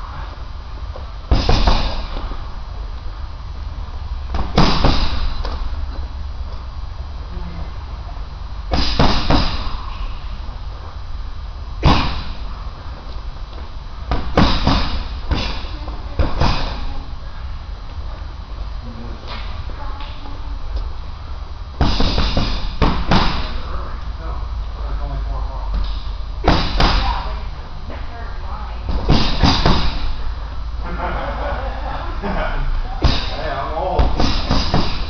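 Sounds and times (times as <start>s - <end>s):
punches thudding on heavy bag: 1.3s - 2.3s, 4.3s - 5.6s, 8.7s - 9.8s, 11.8s - 12.4s, 14.1s - 16.9s, 21.8s - 23.6s, 26.4s - 27.3s, 28.9s - 30.2s, 33.0s - 35.0s.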